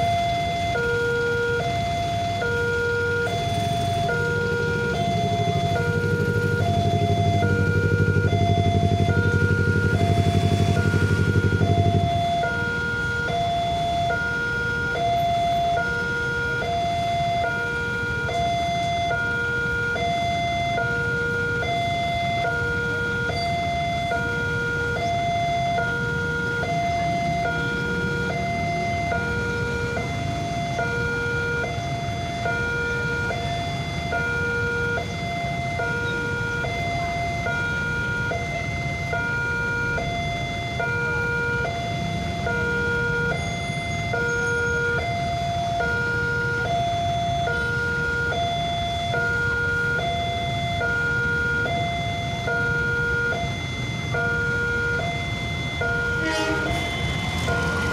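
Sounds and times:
two-tone crossing alarm: 0.0 - 57.9
truck idling: 1.2 - 14.1, 53.8 - 57.9
motorcycle engines idling: 1.7 - 14.2.

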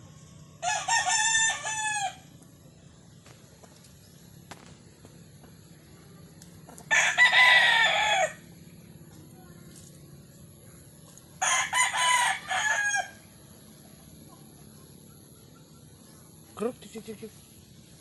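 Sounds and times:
rooster crowing: 0.6 - 2.3, 6.9 - 8.5, 11.4 - 13.4.

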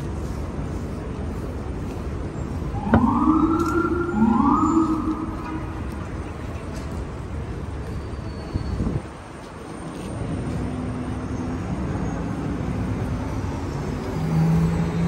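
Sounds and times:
street traffic noise: 0.0 - 15.0
siren whoops: 2.7 - 6.2.

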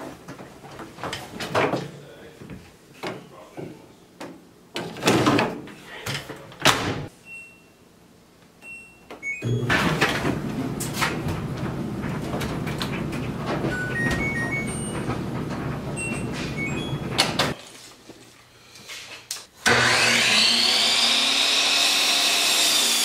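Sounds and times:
machine door moving: 9.5 - 17.6.

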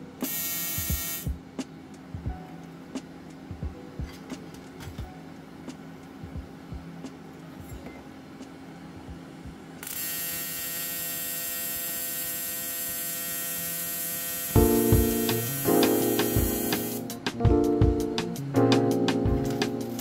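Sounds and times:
welding arc humming and hissing: 0.2 - 1.3, 9.8 - 17.1.

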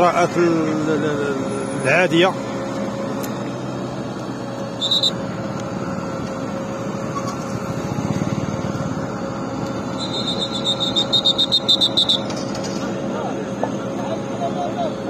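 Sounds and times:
vehicle engine idling: 0.0 - 15.0
rapid high-pitched pulsing: 4.8 - 5.2, 9.9 - 12.5.

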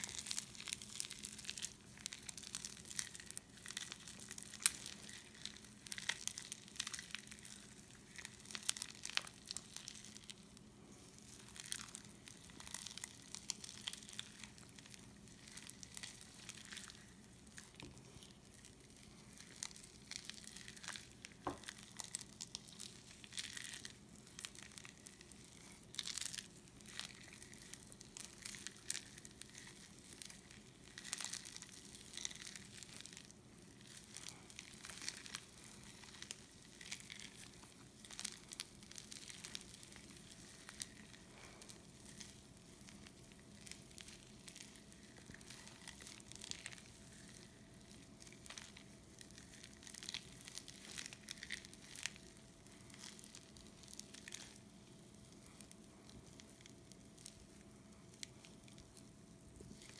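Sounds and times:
foam slime crackling: 0.0 - 59.9.

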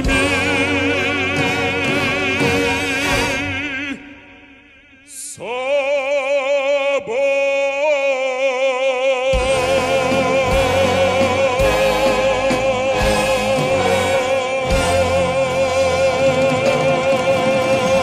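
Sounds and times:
musical accompaniment with beat: 0.0 - 3.6, 9.4 - 18.0
person singing operatically: 0.0 - 18.0.

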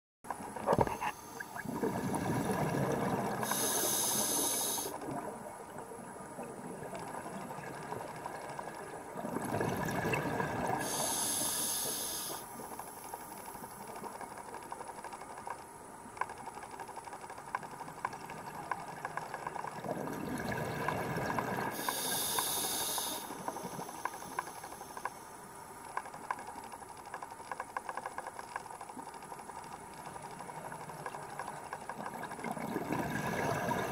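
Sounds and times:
diver exhaling bubbles underwater: 0.6 - 4.1, 9.2 - 11.2, 19.8 - 22.1, 32.2 - 33.9
small clicks and crackles: 2.5 - 33.0
regulator inhale hiss: 3.4 - 5.0, 10.8 - 13.5, 21.7 - 25.4.

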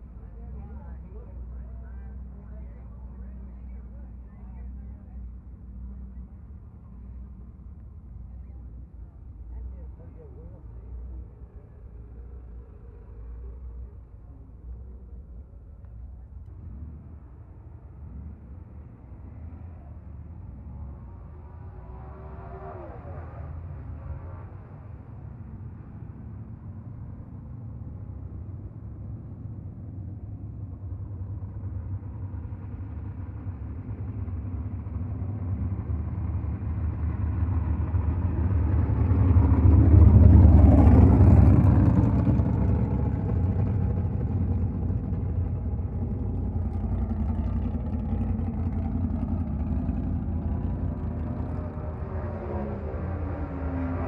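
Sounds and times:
car passing by: 21.1 - 24.6, 46.8 - 54.0.

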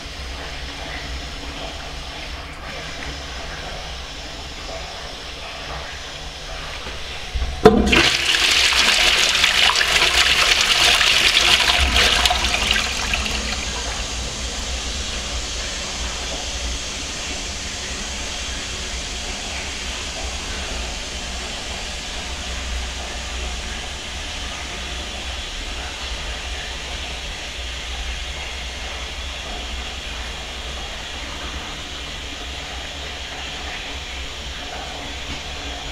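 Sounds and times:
toilet water rushing: 0.0 - 25.2
toilet flush knock: 6.8 - 16.6.

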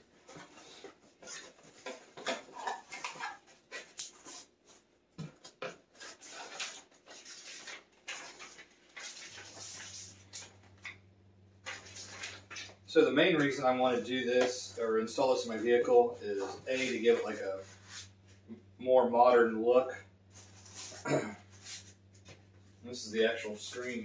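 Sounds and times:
paper packing rustling: 5.5 - 11.0, 11.6 - 12.8.

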